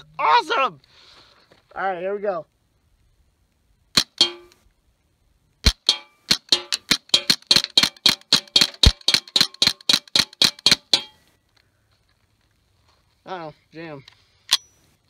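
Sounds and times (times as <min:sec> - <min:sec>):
rifle rapid shots: 0:05.6 - 0:11.0.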